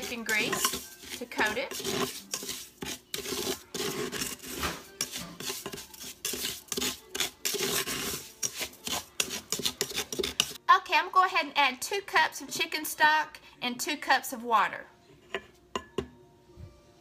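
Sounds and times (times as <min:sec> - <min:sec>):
wooden spatula scraping pot: 0:00.0 - 0:10.6.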